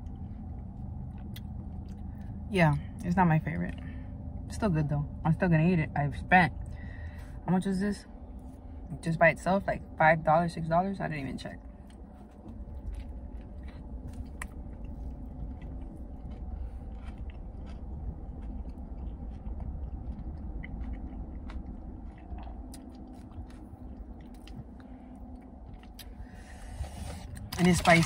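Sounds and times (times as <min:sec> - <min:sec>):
crunchy chewing: 0:00.0 - 0:02.5, 0:11.6 - 0:28.0
steady low rumble: 0:00.0 - 0:28.0.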